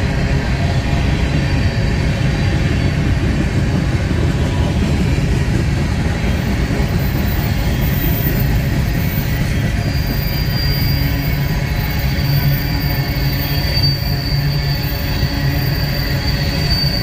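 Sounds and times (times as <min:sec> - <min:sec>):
train rumbling on rails: 0:00.0 - 0:17.0
high wheel squeal: 0:00.4 - 0:17.0.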